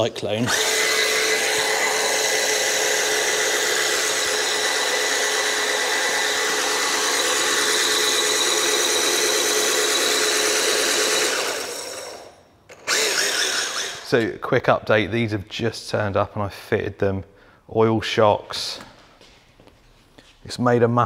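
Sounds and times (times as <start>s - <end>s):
toy car motor whining: 0.4s - 14.1s.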